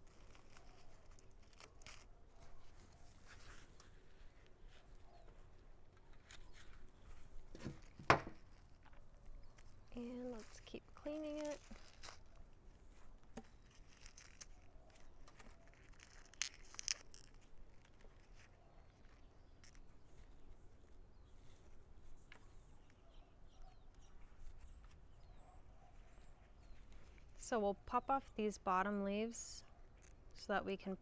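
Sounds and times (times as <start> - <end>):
dry leaves snapping and crackling: 0.0 - 4.8, 6.0 - 21.7.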